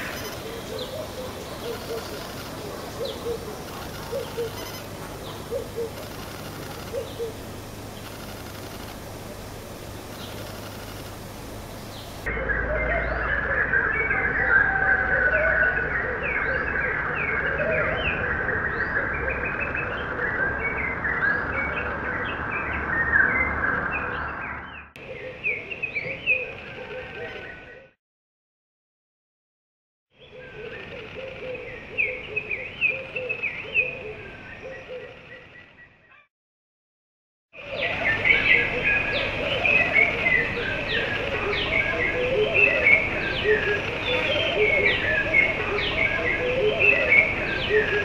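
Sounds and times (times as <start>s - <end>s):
birds chirping and calling: 0.0s - 9.1s, 10.0s - 27.8s, 30.2s - 36.3s, 37.6s - 48.0s.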